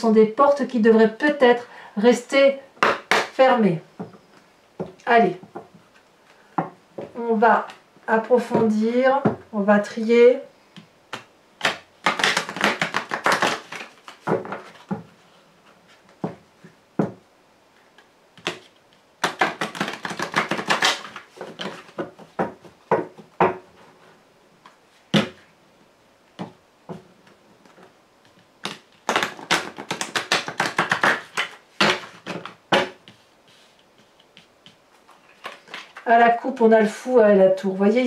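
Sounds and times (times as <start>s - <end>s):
cards shuffling: 11.1s - 15.0s, 18.0s - 22.4s, 28.6s - 36.1s.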